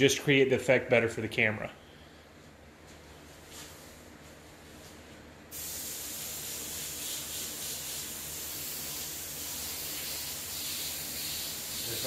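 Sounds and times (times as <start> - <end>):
spray gun hissing: 5.5 - 12.0.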